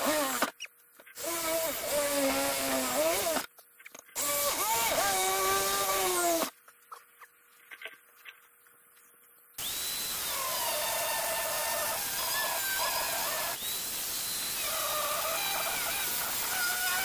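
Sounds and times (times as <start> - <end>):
angle grinder cutting steel: 9.6 - 17.0.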